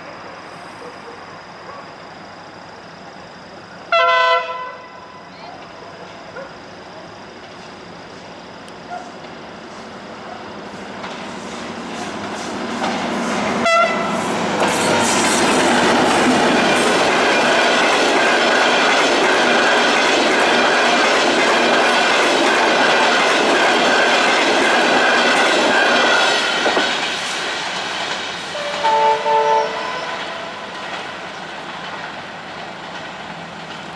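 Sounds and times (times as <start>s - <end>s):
train horn toots: 3.9s - 5.1s, 13.6s - 14.2s, 28.5s - 30.7s
train wheels clattering over rails: 10.6s - 33.9s.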